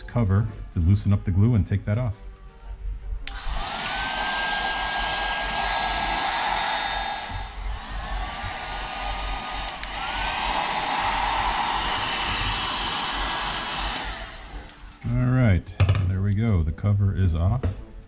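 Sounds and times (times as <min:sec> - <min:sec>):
hair dryer blowing: 0:03.2 - 0:15.1.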